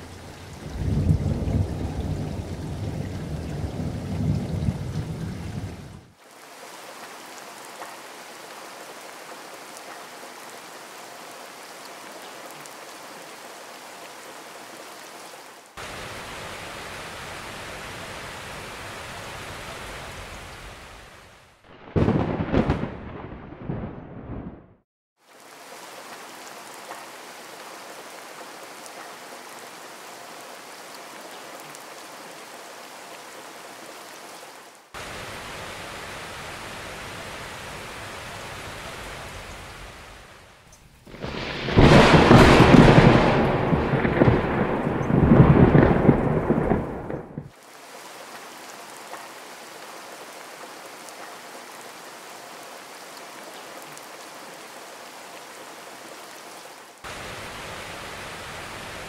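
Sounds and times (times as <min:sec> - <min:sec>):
heavy rain falling: 0:00.0 - 0:24.7, 0:25.3 - 0:59.0
deep rumble of thunder: 0:00.3 - 0:06.1, 0:21.8 - 0:24.8, 0:41.1 - 0:47.5.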